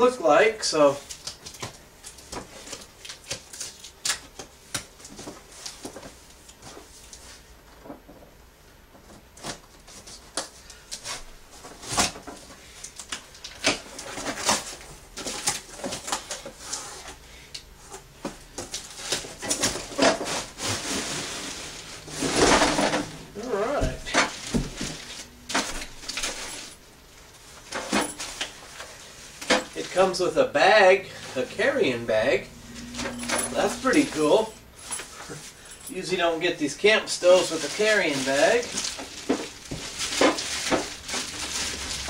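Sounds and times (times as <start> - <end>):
cardboard scraping and knocking: 19.1 - 26.7.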